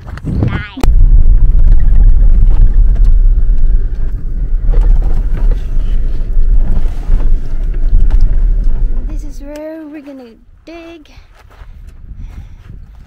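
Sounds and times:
vehicle rumbling on dirt track: 0.0 - 10.6
knocks and rattles: 0.9 - 10.2.

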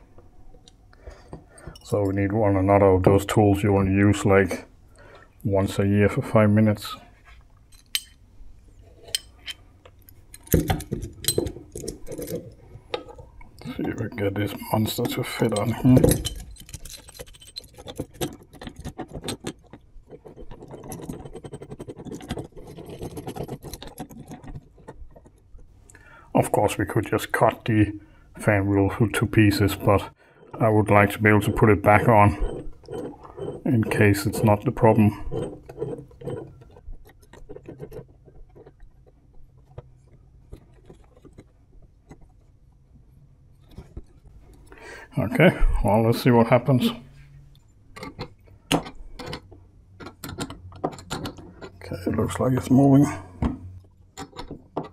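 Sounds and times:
steel jaws clinking and rattling: 7.6 - 8.3, 8.9 - 25.4
small metallic clicks and taps: 47.5 - 51.8.

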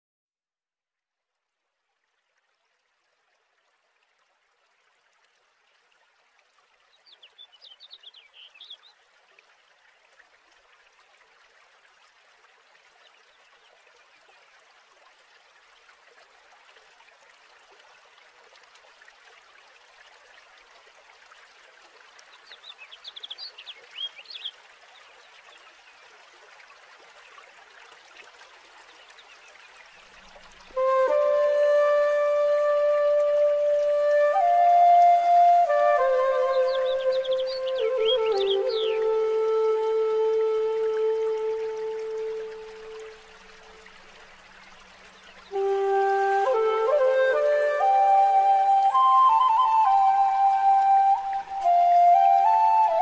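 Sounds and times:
faint steady hiss: 1.3 - 53.0
bird chirping: 7.0 - 8.9, 22.4 - 24.6, 36.1 - 39.1.

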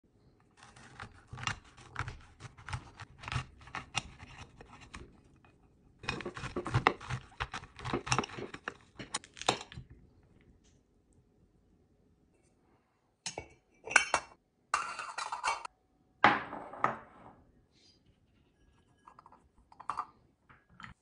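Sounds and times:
knife cutting fruit rind: 0.5 - 5.2, 6.0 - 9.8.

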